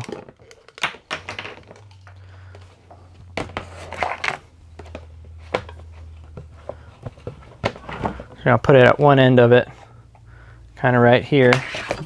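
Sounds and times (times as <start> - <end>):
plastic parts clicking and clattering: 0.0 - 2.7
low steady hum: 0.0 - 12.0.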